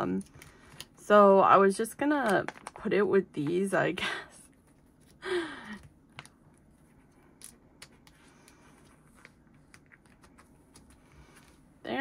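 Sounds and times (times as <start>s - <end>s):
photocard clicks and crinkles: 2.2s - 2.8s, 7.3s - 11.5s.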